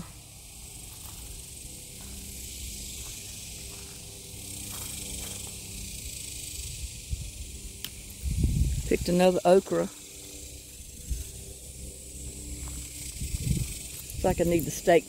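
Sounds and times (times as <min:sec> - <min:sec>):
steady high hiss: 0:00.0 - 0:15.0
low rumble: 0:06.4 - 0:14.7.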